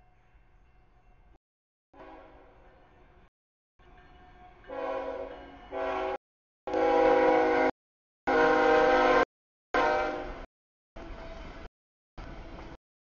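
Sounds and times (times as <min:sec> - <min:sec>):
train air horn blasts: 0:02.0 - 0:02.6, 0:04.7 - 0:07.7, 0:08.3 - 0:10.5.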